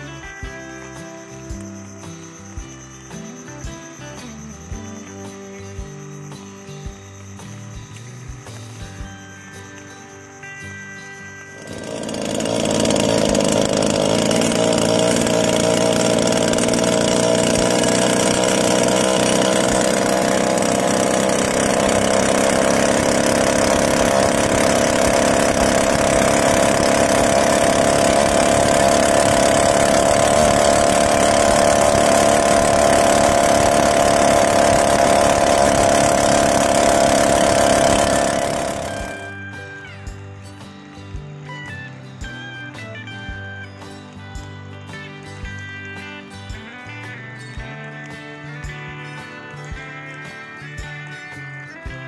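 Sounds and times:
small boat engine running: 0:11.4 - 0:39.8.

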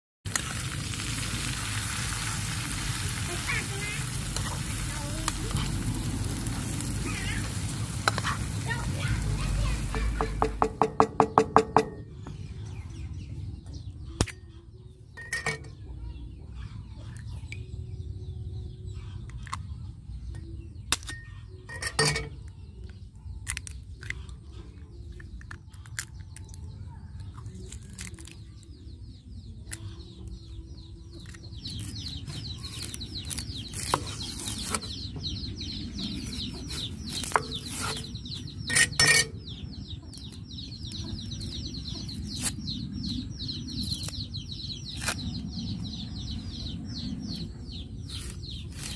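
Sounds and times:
birds chirping: 0:00.8 - 0:48.9
eggs cracking into a bowl: 0:25.1 - 0:26.7.

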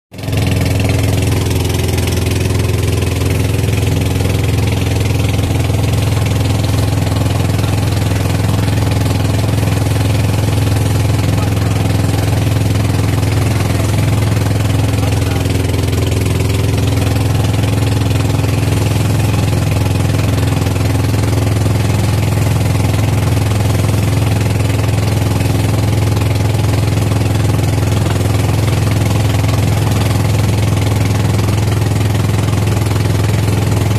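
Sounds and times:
boat engine droning: 0:00.1 - 0:33.9
water rushing along hull: 0:00.1 - 0:33.9.

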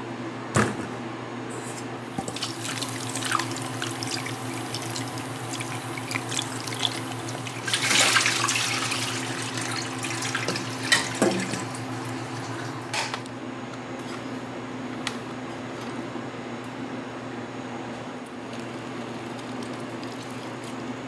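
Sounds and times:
steady low hum: 0:00.0 - 0:17.6
tap water splashing in bowl: 0:10.2 - 0:12.2.

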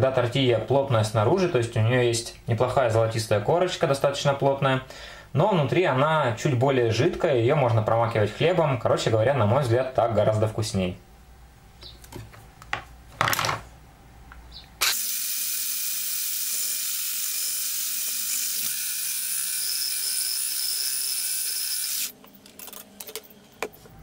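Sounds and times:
electric hand blender running: 0:14.8 - 0:22.1.

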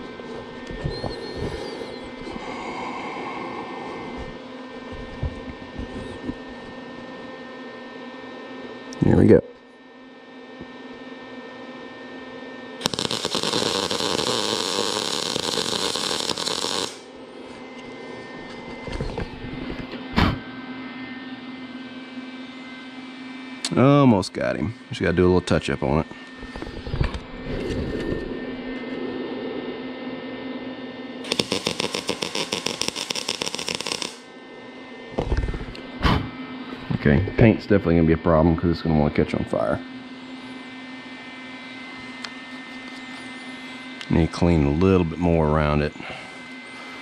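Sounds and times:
faint steady hum: 0:00.0 - 0:47.0
welding arc crackling: 0:12.8 - 0:17.1, 0:31.2 - 0:34.3.

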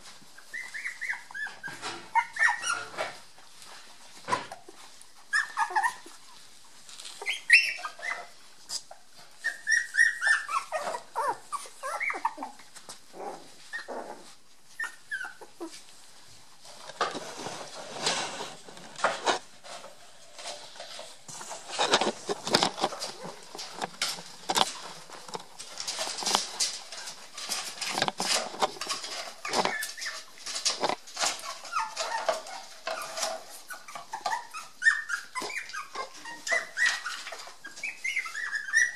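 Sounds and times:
puppies whining and yelping: 0:00.0 - 0:03.2, 0:04.0 - 0:16.8, 0:21.5 - 0:38.9
clicks scuffles and rustling: 0:15.6 - 0:34.3.

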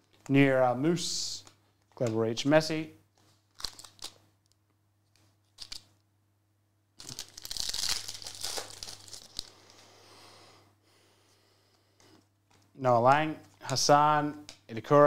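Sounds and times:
foil wrapper tearing and crinkling: 0:03.5 - 0:04.2, 0:07.0 - 0:09.6.

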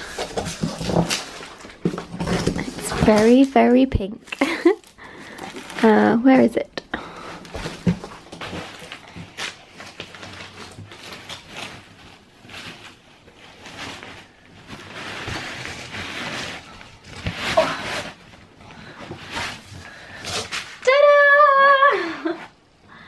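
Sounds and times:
fabric cover rustling: 0:07.2 - 0:22.4.

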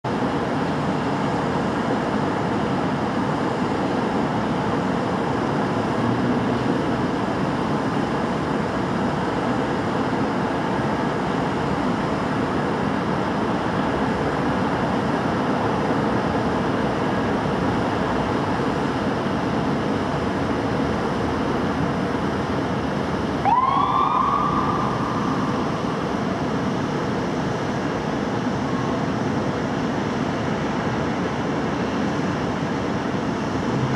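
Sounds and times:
city traffic hum: 0:00.0 - 0:33.9
fire engine siren: 0:22.8 - 0:27.1.

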